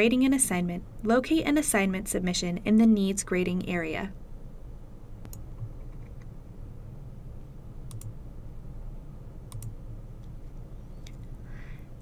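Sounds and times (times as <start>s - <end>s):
low steady hum: 0.0s - 12.0s
computer mouse clicking: 7.9s - 8.1s, 9.5s - 10.4s.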